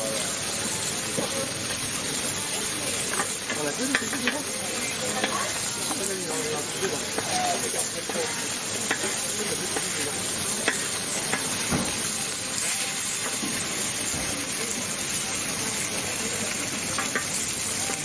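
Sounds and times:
food sizzling on griddle: 0.0 - 18.0.

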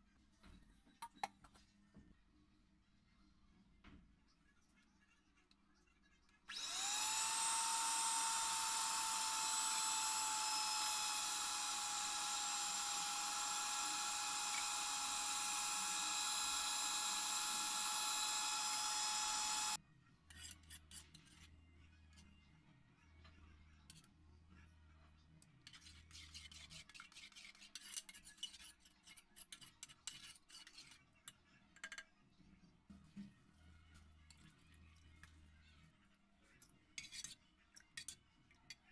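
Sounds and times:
hand blender whining: 6.5 - 19.8.

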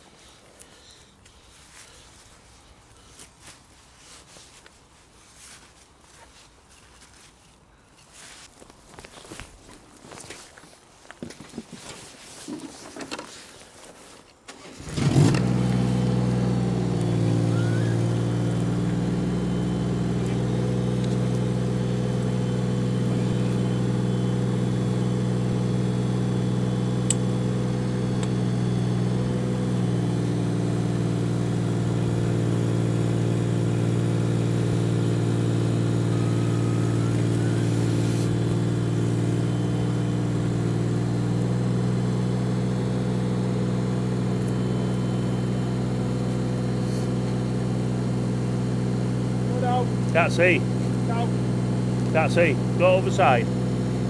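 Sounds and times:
excavator diesel engine running: 14.9 - 54.0.

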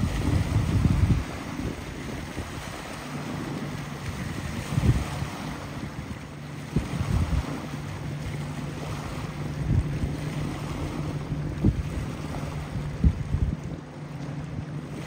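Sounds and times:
motorboat engines droning: 0.0 - 15.0
water wash: 0.0 - 15.0
wind buffeting microphone: 0.0 - 15.0.

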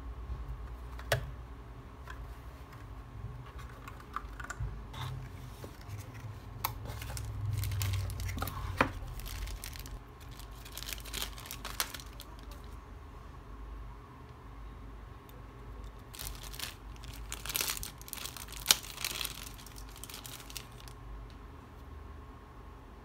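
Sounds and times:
keyboard packaging being handled: 5.3 - 12.8, 15.8 - 20.9.

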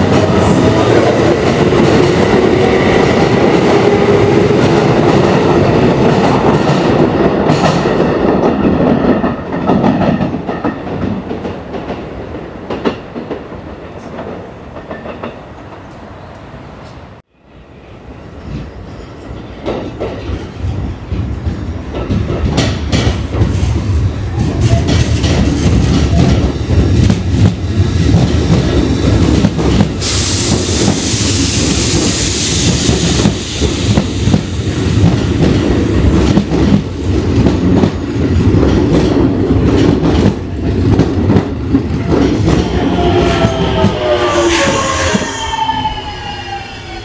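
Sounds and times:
train wheels clattering over joints: 19.6 - 31.1
loud hiss of air: 28.8 - 35.0.

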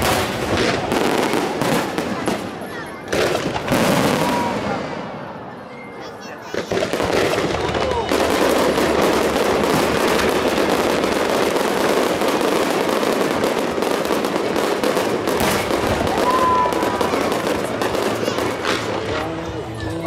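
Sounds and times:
fireworks crackling and popping: 0.0 - 5.4, 6.3 - 20.0.

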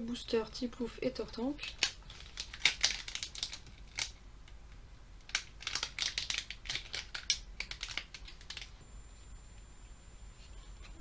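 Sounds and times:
foil wrapper crinkling and tearing: 1.6 - 4.2, 5.3 - 8.8.

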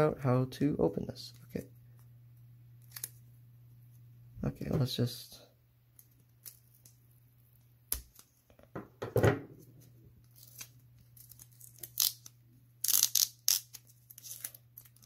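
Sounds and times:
tape tearing off plastic sleeve: 10.3 - 15.0.

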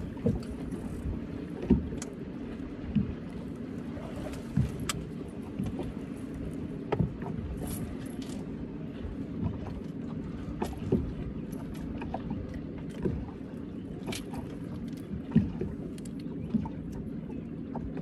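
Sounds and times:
low hum of boat motor: 0.0 - 18.0
knocks and light clinks: 4.3 - 8.5.

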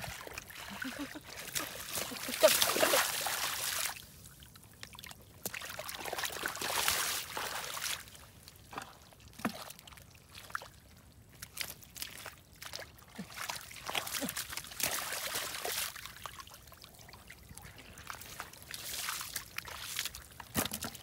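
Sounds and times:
hands splashing in muddy water: 0.1 - 4.0, 11.6 - 16.1
wet squelches in mud: 8.6 - 20.9.

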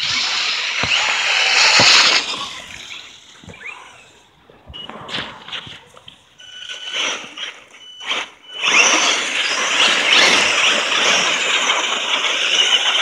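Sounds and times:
tyres churning through slushy snow: 0.0 - 3.9
electric motors whining: 0.0 - 13.0.

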